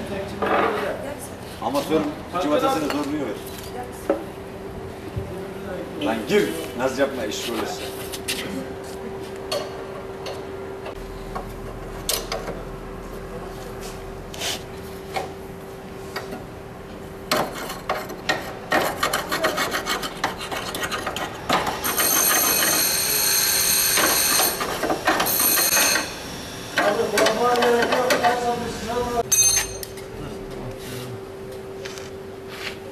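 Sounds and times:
high-pitched scraping: 19.2 - 24.6.

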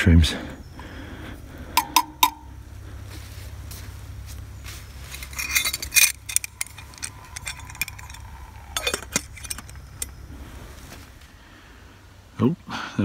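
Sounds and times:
low steady rumble: 0.0 - 12.7
metal lid clinking on can: 1.8 - 2.5, 5.2 - 10.1
thin ringing tone: 1.8 - 2.6, 5.0 - 10.3.

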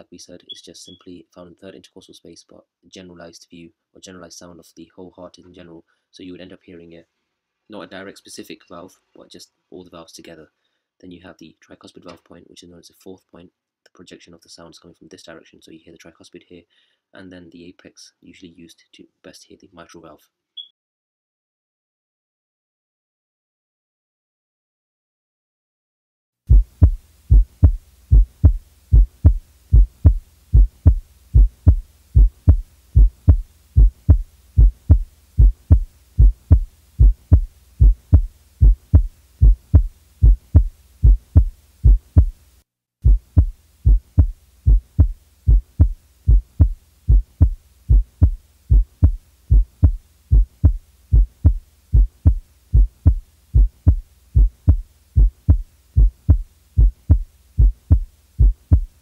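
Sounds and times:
heartbeat lub-dub: 26.5 - 42.4, 43.0 - 59.0.

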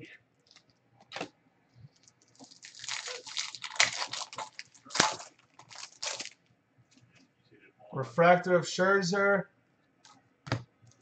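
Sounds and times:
foil pack crinkling: 1.9 - 6.5.

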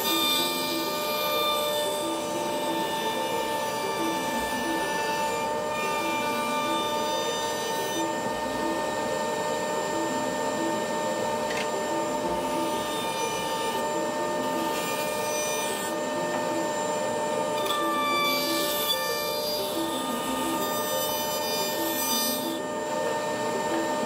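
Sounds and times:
woodworking machine whine: 0.0 - 24.0.

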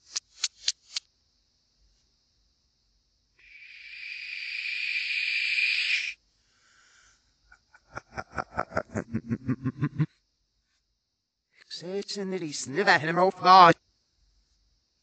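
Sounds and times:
low rapid chuckle: 7.7 - 10.1
man hushing: 7.8 - 10.1.

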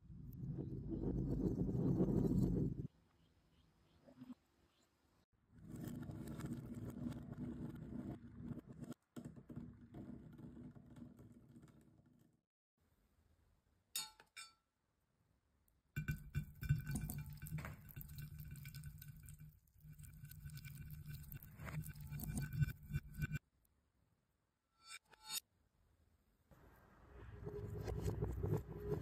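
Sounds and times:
glass clink: 14.0 - 14.6, 16.0 - 18.8
water beads clattering onto a plate: 16.0 - 23.2
water beads clinking into glass dish: 16.0 - 23.3.

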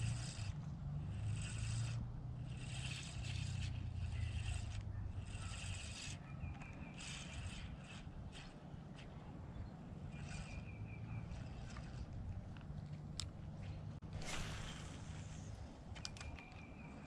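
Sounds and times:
fishing reel cranking: 0.0 - 9.1, 10.1 - 12.3.

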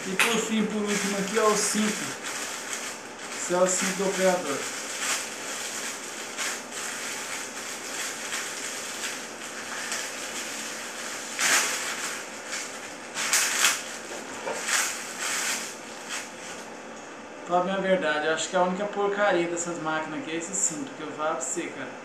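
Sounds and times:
plastic bag crinkling: 0.0 - 16.7.

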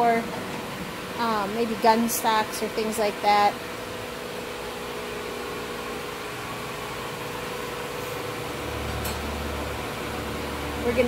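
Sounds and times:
sawmill mechanical hum: 0.0 - 11.0
deeper drone: 7.4 - 11.0.

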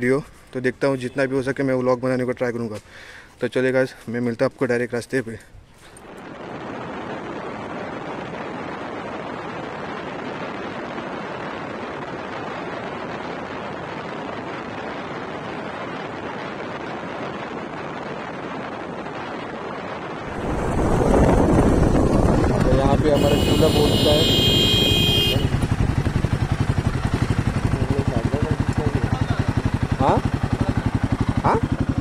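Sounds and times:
wind rushing on microphone: 6.0 - 30.3.

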